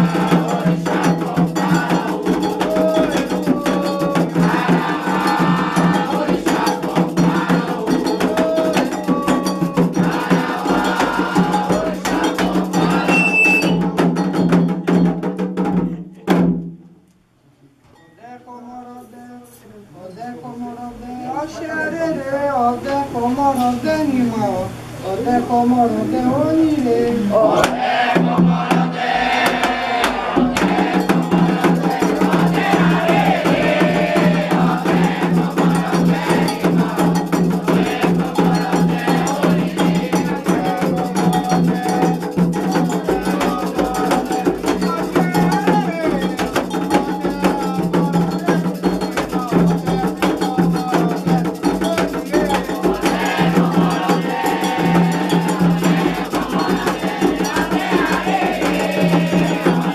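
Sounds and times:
voices singing: 0.0s - 15.1s, 18.2s - 59.9s
hand drums: 0.0s - 16.9s, 27.5s - 59.9s
iron bell rhythm: 34.4s - 57.9s.

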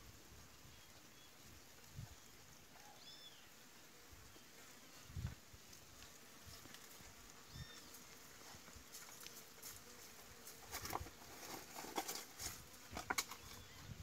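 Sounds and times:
bird chirp: 2.1s - 3.6s, 7.5s - 7.9s, 13.3s - 14.0s.

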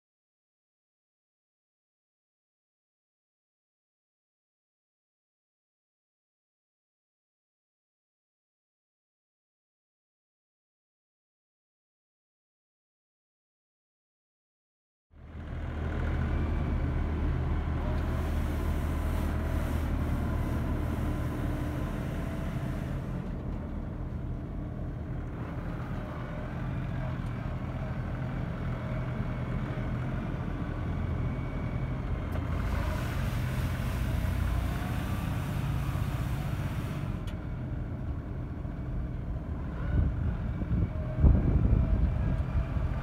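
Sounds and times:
tractor diesel engine droning: 15.2s - 43.0s.

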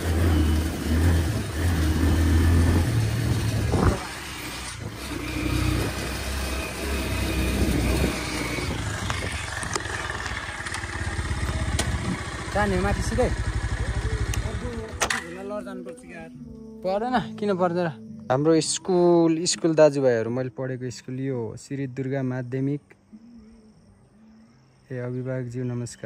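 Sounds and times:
motorcycle engine running: 0.0s - 15.6s.

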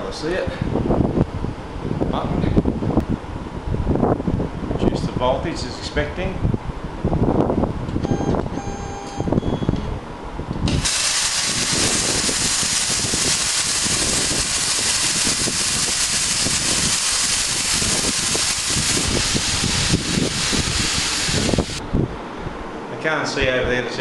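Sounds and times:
plasma cutter arc hissing: 10.7s - 21.8s.

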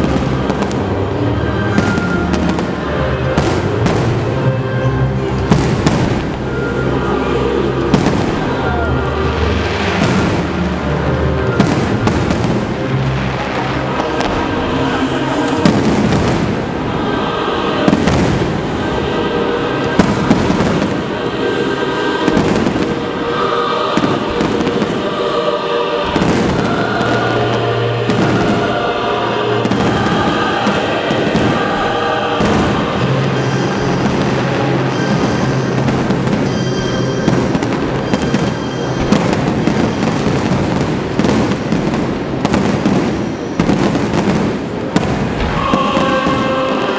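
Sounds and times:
fireworks bursting and crackling: 0.0s - 46.9s
music: 0.0s - 46.9s
sharp firework bangs: 3.4s - 4.3s, 5.5s - 6.4s, 9.7s - 10.6s, 11.5s - 12.8s, 14.2s - 16.9s, 17.8s - 18.8s, 19.8s - 21.4s, 26.0s - 28.8s, 29.6s - 46.8s.

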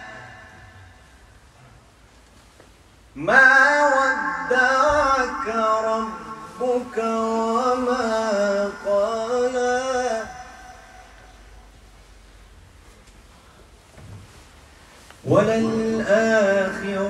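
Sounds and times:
man reciting melodically: 0.0s - 1.3s, 3.1s - 11.6s, 15.2s - 17.0s.

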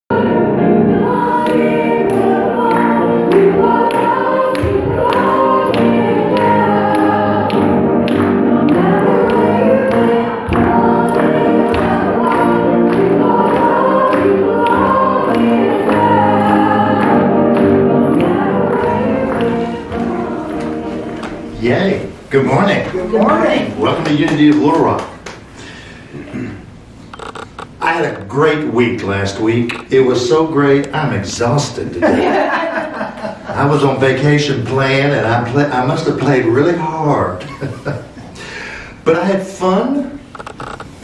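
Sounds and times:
choir singing gospel music: 0.1s - 22.3s.

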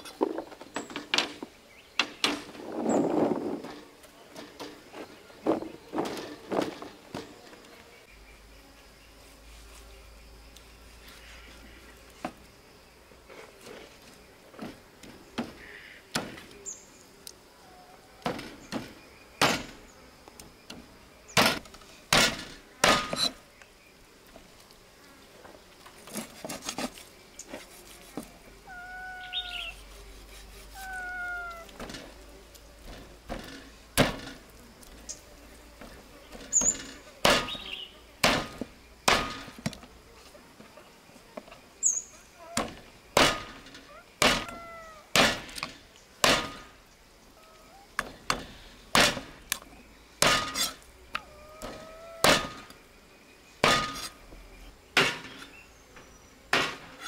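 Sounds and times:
short bird calls: 28.6s - 29.9s, 30.7s - 31.7s, 43.9s - 45.1s, 51.2s - 52.7s
cleaver chopping bones on wood: 37.2s - 37.6s, 38.2s - 39.8s, 44.2s - 46.6s, 50.2s - 50.7s, 51.6s - 52.7s, 53.6s - 54.1s.

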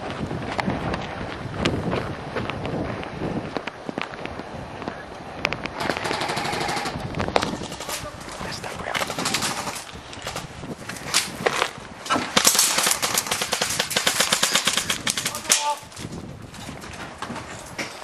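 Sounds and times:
airsoft guns firing: 5.8s - 8.1s, 9.0s - 9.8s, 12.1s - 15.7s.

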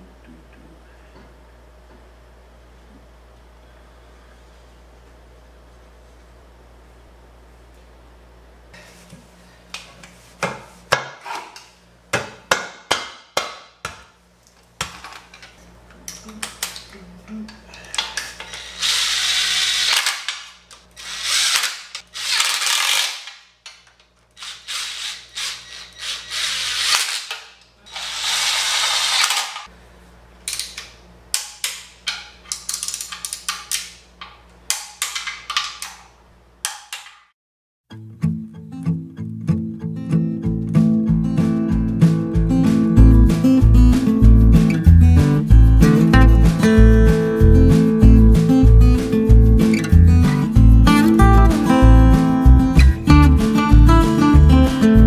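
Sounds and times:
cordless drill driving bolts: 18.4s - 20.4s, 21.0s - 23.1s, 24.4s - 29.6s.

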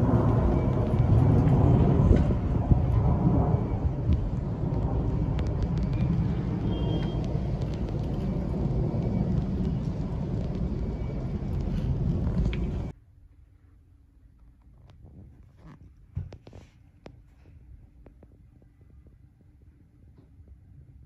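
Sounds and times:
jet airliner engines rumbling: 0.0s - 13.0s.

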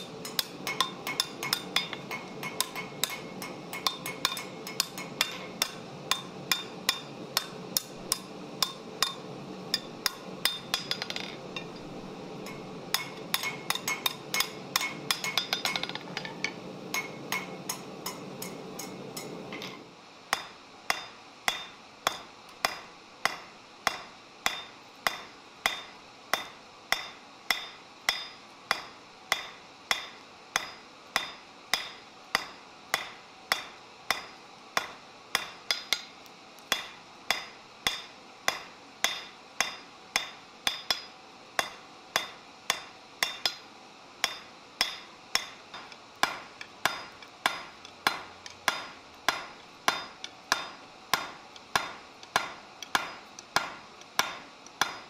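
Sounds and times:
hammer ringing on anvil: 0.2s - 9.2s, 9.8s - 36.0s, 44.2s - 55.0s.

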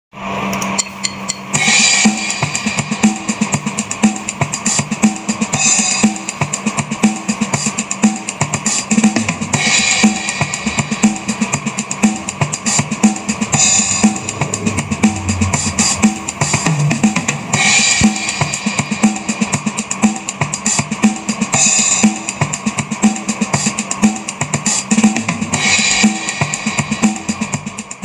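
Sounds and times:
drum kit beat: 0.9s - 28.0s
cymbal crash: 9.5s - 19.7s.

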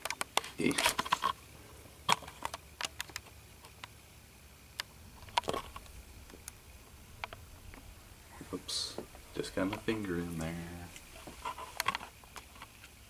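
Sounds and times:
clicks and scrapes in wire cage: 0.0s - 1.4s, 11.0s - 13.0s.

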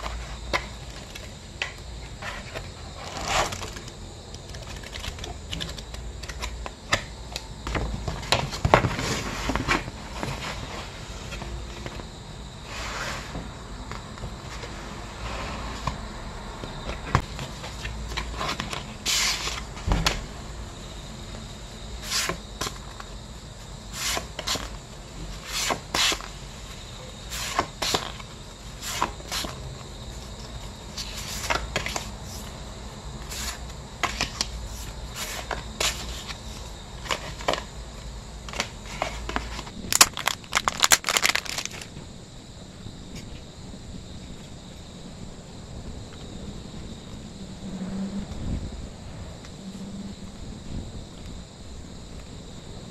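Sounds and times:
photo prints rustling and scraping: 0.0s - 7.1s, 7.7s - 12.0s, 17.0s - 20.2s, 22.0s - 32.6s, 33.2s - 37.7s, 38.4s - 41.9s.

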